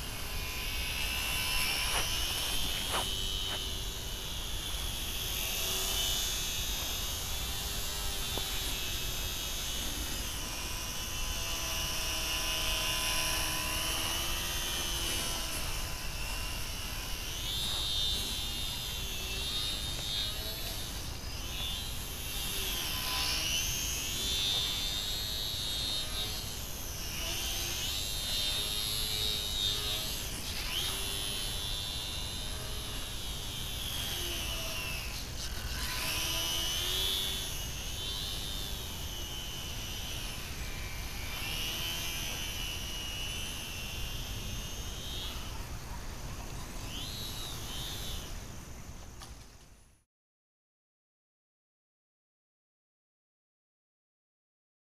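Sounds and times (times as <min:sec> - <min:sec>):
rc plane motor whining: 0:00.0 - 0:50.0.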